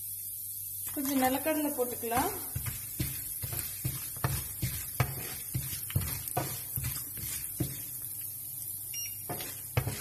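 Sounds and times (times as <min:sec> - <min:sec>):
faint sizzle of frying: 0:00.0 - 0:10.0
spatula tapping and scraping pan: 0:01.9 - 0:08.3, 0:09.2 - 0:10.0.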